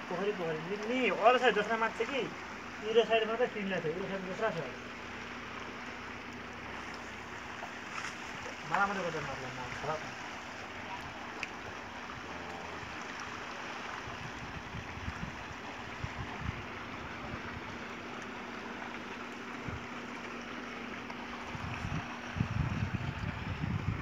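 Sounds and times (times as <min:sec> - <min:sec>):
outdoor hiss: 0:00.0 - 0:12.6
faint steady hum: 0:00.0 - 0:24.0
wind buffeting microphone: 0:14.0 - 0:18.1, 0:21.3 - 0:24.0.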